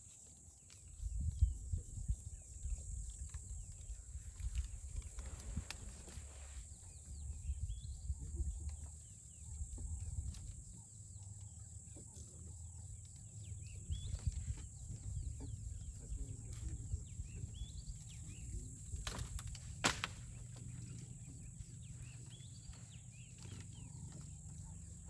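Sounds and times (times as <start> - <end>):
low rumbling background: 0.9 - 25.0
twigs and branches snapping: 3.1 - 6.3, 18.0 - 24.7
leaves rustling: 3.2 - 7.0, 17.9 - 25.0
bird chirps: 3.7 - 25.0.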